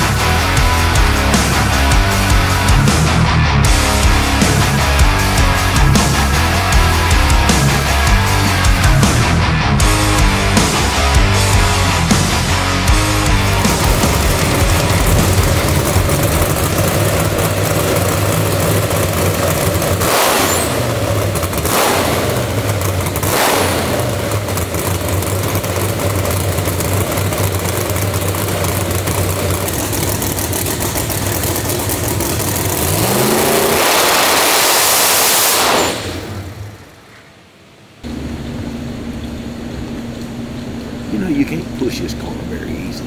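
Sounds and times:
supercharged engine lumpy idle: 0:00.0 - 0:34.4, 0:38.0 - 0:43.0.

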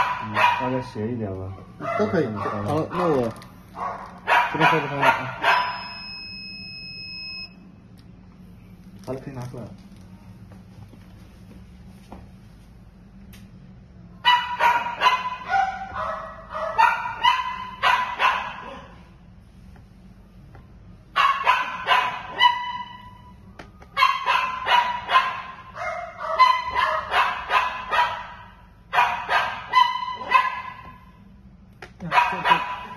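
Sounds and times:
dog barking and yipping: 0:00.0 - 0:00.8, 0:01.5 - 0:05.9, 0:14.2 - 0:19.1, 0:21.1 - 0:23.2, 0:23.9 - 0:31.0, 0:32.0 - 0:32.9.

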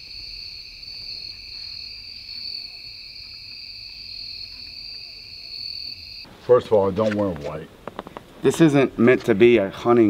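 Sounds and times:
insect chorus trilling: 0:00.0 - 0:06.3.

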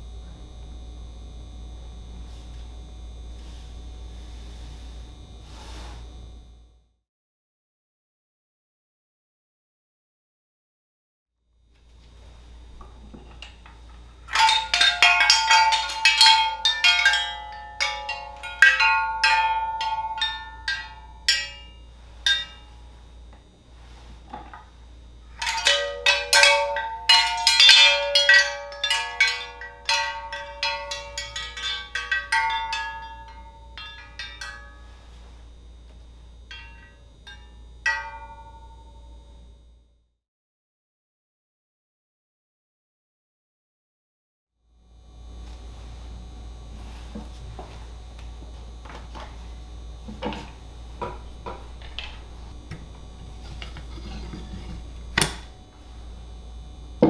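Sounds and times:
metal wind chime ringing: 0:14.3 - 0:23.0, 0:25.3 - 0:35.4, 0:36.5 - 0:39.2.

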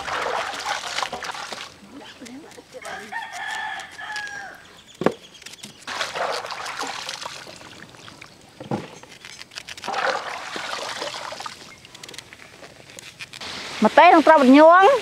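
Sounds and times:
water splashing in basin: 0:00.0 - 0:01.8, 0:05.9 - 0:08.4, 0:09.8 - 0:11.8.

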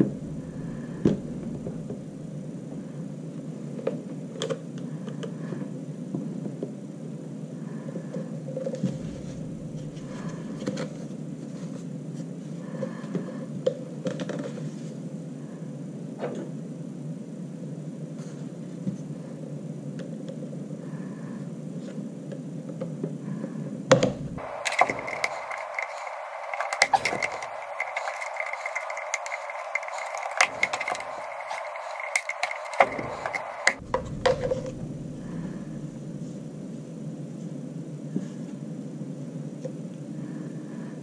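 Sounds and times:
steady background noise: 0:00.0 - 0:41.0
screwdriver scraping plastic: 0:24.4 - 0:34.7.

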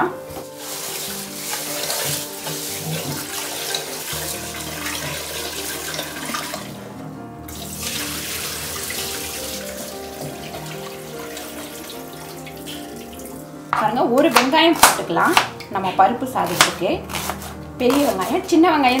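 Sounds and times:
background music: 0:00.0 - 0:19.0
water splashing in pot: 0:00.6 - 0:06.7
water poured into sink: 0:00.6 - 0:06.8, 0:07.5 - 0:13.4.

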